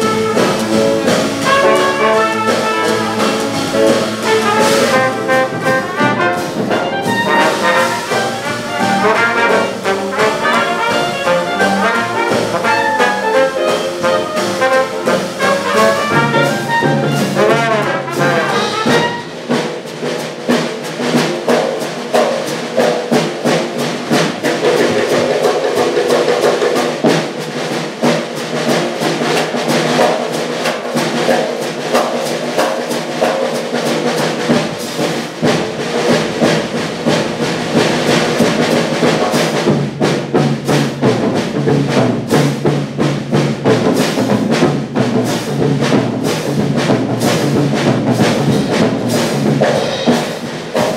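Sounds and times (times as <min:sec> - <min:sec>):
clarinet: 0:00.0 - 0:19.4
trombone: 0:00.0 - 0:19.8, 0:28.0 - 0:50.9
trumpet: 0:00.0 - 0:19.8
drums swing beat: 0:00.0 - 0:50.9
piano: 0:00.0 - 0:50.9.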